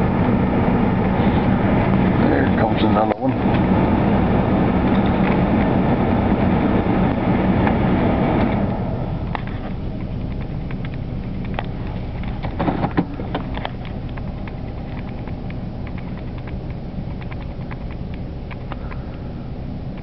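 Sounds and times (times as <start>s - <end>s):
freight train rumbling past: 0.0s - 10.1s
wheels clanking on rails: 0.0s - 20.0s.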